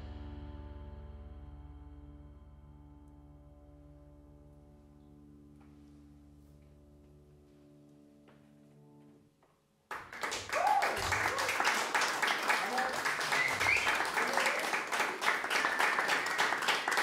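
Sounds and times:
bowed double bass: 0.0s - 7.5s
audience applause: 9.9s - 17.0s.

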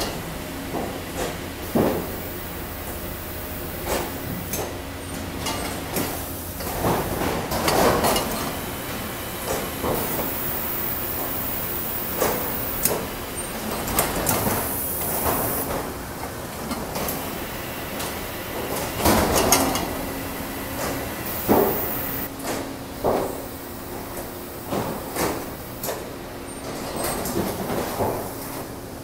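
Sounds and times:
machine knocks and clatter: 0.0s - 2.2s
conveyor mechanical drone: 0.0s - 27.7s
high hiss: 8.8s - 13.1s, 14.3s - 15.7s, 17.1s - 22.3s.

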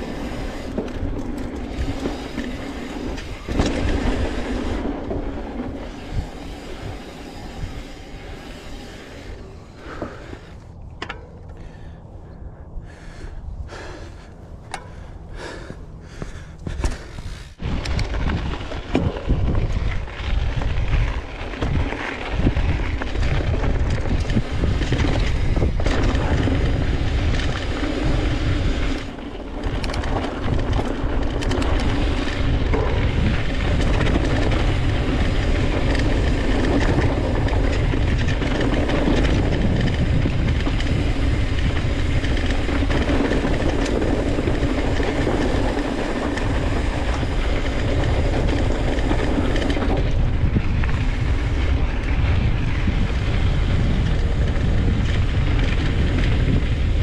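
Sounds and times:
bike tyres rolling on dirt trail: 0.0s - 57.0s
wind rumbling on microphone: 0.0s - 57.0s.

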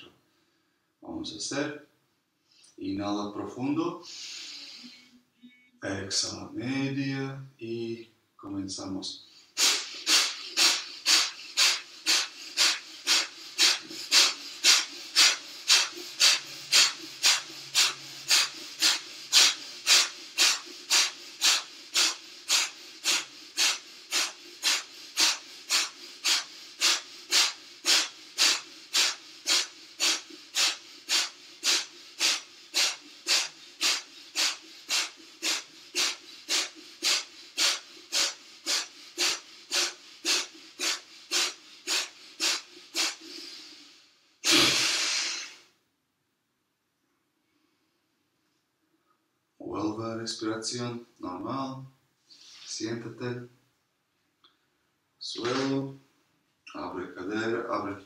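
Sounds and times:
man's forceful rhythmic exhalations: 4.0s - 5.2s, 9.2s - 45.8s.

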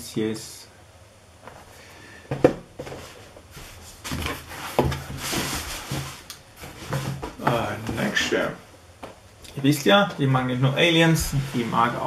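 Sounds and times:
rustling of cardboard and packing: 1.5s - 9.2s, 10.8s - 12.0s.

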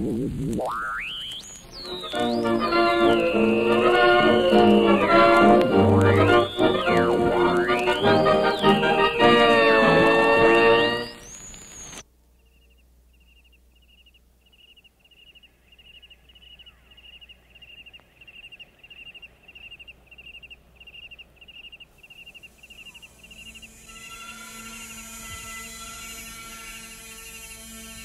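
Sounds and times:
sustained drone: 1.8s - 11.2s
cricket chirping: 10.8s - 25.0s
hiss: 22.2s - 28.0s.

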